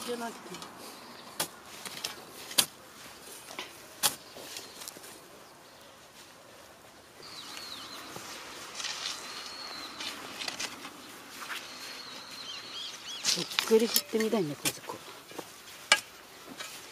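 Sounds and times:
bird whistled calls: 9.1 - 10.1.

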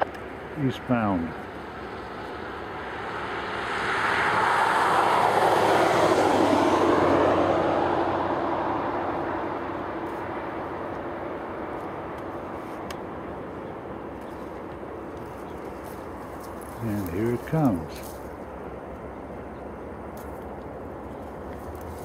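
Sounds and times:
steady low hum: 0.0 - 22.0
vehicle passing by: 1.0 - 12.8, 15.2 - 18.6.

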